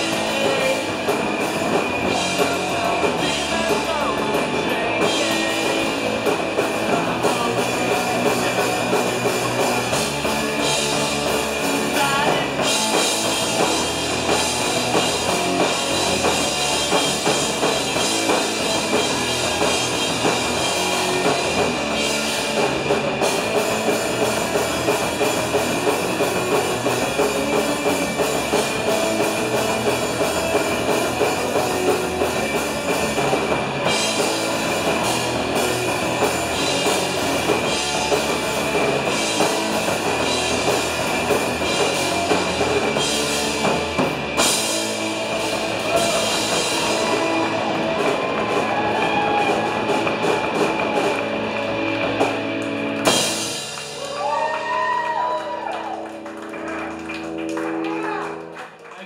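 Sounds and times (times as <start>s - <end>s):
drum kit with cymbals: 0.0s - 55.6s
electric guitar: 0.0s - 59.0s.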